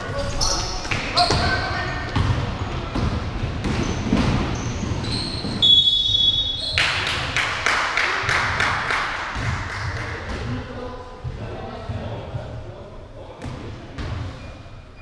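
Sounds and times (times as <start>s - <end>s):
sneaker squeaks: 0.1s - 2.4s, 3.0s - 7.0s, 14.0s - 15.0s
basketball bouncing on floor: 0.9s - 4.5s
referee's whistle blast: 5.6s - 6.7s.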